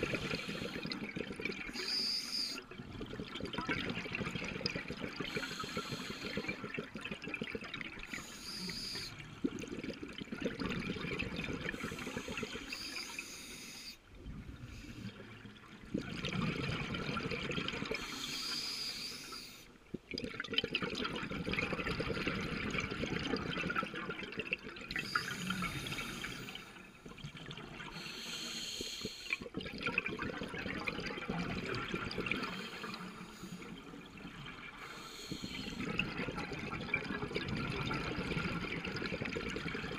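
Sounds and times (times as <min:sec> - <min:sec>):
regulator inhale hiss: 0:00.2 - 0:01.0, 0:01.7 - 0:02.6, 0:05.3 - 0:06.6, 0:08.1 - 0:09.2, 0:11.7 - 0:14.0, 0:18.0 - 0:19.7, 0:25.0 - 0:26.8, 0:27.9 - 0:29.5, 0:32.5 - 0:33.8, 0:34.8 - 0:35.9
gurgling exhaust bubbles: 0:15.8 - 0:18.0, 0:35.4 - 0:39.9.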